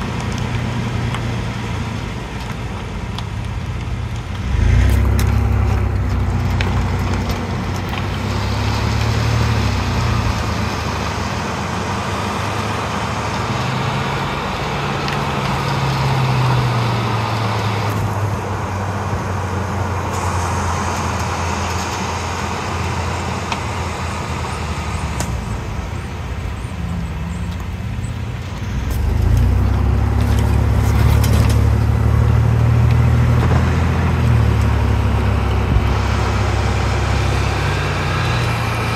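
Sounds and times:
car engine and road noise: 0.0s - 38.9s
heavy low rumble: 17.9s - 38.9s.

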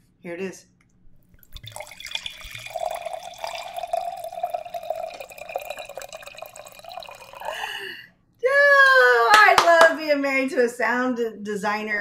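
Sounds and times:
wine pouring into a glass: 1.4s - 8.0s.

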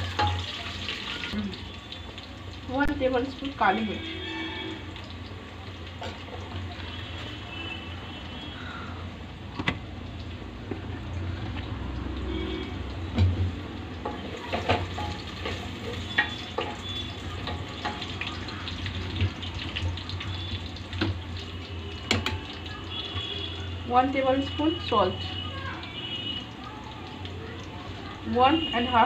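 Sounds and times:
spoon knocking on metal pan: 0.2s - 0.5s, 14.0s - 16.8s.

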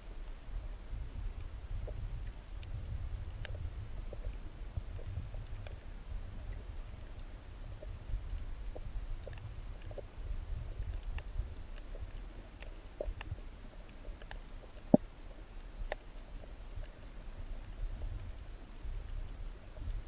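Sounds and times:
low rumble of moving water: 0.0s - 20.0s
sharp underwater clicks: 8.3s - 15.1s, 15.8s - 16.1s.

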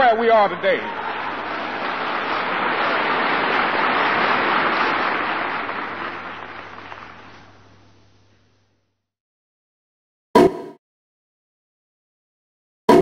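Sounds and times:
audience applauding: 0.0s - 8.0s
steady low hum: 5.5s - 9.0s.

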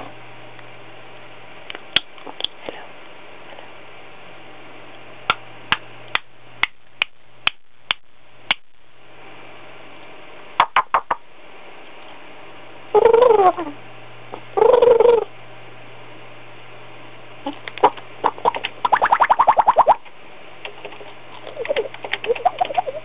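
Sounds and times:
parrot clicking: 20.6s - 23.0s.

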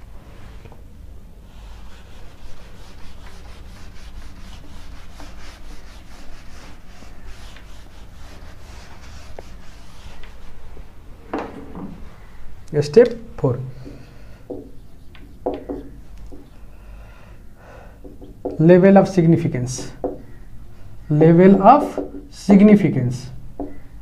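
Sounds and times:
whiteboard eraser rubbing: 1.5s - 10.9s, 14.5s - 16.7s.

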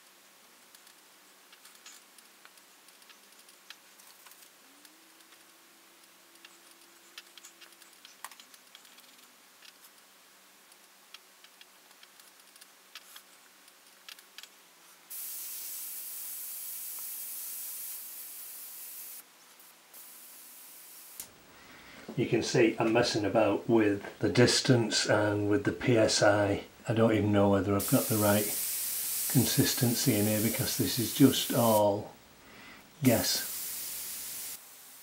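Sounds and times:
airbrush spraying hiss: 15.1s - 19.2s, 19.9s - 21.2s, 27.8s - 32.0s, 33.0s - 35.0s.

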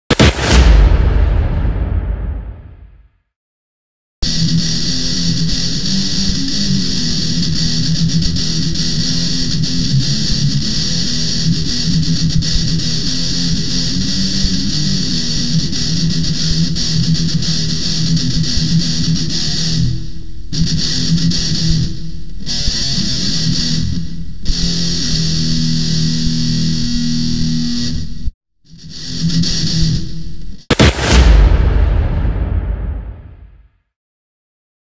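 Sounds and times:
steady drum beat: 0.1s - 2.6s, 30.7s - 33.3s
heavy metal guitar riffing: 4.3s - 17.8s.

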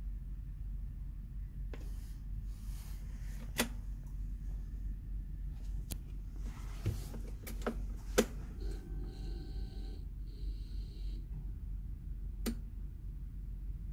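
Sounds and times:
steady electrical tone: 7.9s - 11.3s.

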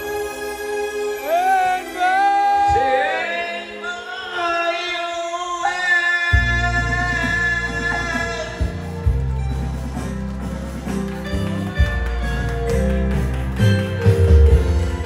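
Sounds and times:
man singing into microphone: 1.6s - 8.9s
live band keyboards: 6.3s - 15.0s
bass and beat: 6.4s - 15.0s.

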